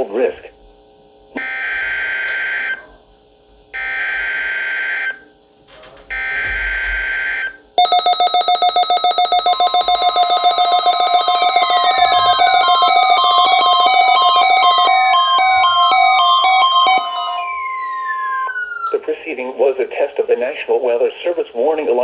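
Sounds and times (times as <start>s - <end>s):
rapid electronic alarm beeping: 1.4s - 2.8s, 3.8s - 5.2s, 6.1s - 19.1s
digital data bursts: 7.8s - 19.0s.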